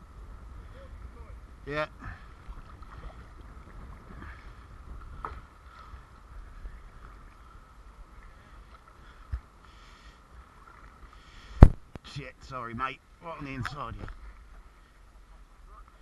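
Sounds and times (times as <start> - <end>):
wind rumble on microphone: 0.0 - 9.6, 10.3 - 12.0
kayak paddle splashing in water: 2.1 - 7.5.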